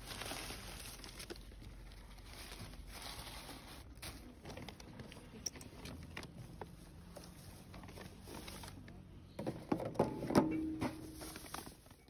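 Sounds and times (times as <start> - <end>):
bags rustling and crinkling: 0.0 - 9.1, 10.5 - 12.0.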